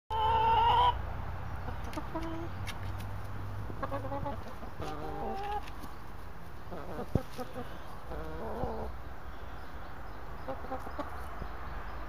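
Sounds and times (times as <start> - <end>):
hens clucking: 0.1 - 1.0, 1.6 - 3.0, 3.6 - 9.1, 10.4 - 11.5.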